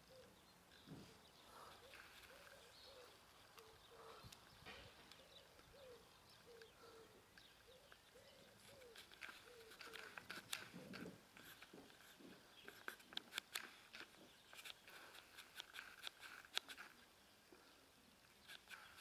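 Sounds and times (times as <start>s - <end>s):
pigeon cooing: 1.0s - 4.4s, 5.1s - 11.2s
sharp clicks: 8.9s - 11.7s, 12.7s - 17.0s.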